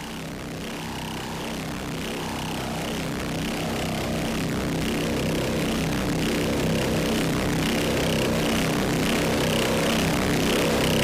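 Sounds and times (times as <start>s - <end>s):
steady engine drone: 0.0s - 11.0s.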